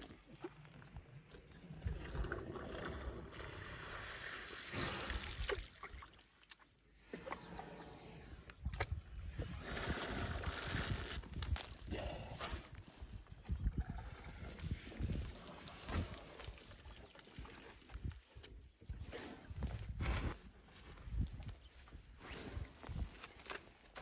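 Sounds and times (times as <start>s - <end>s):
water splashing and sloshing: 0.0s - 7.6s, 14.0s - 19.8s.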